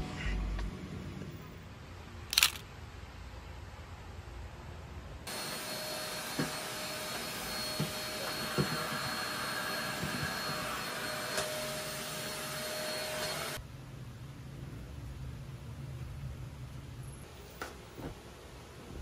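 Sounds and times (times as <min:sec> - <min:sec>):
vacuum cleaner running: 0:05.3 - 0:13.6.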